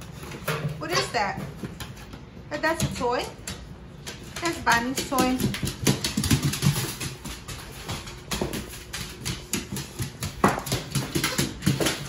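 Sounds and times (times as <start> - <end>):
dog claws clicking on wooden floor: 1.6 - 12.0.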